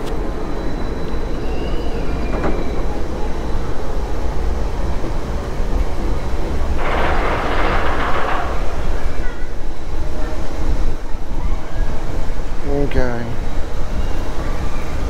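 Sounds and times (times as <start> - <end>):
faint high whine: 0.0 - 15.0
monorail rumbling: 0.0 - 15.0.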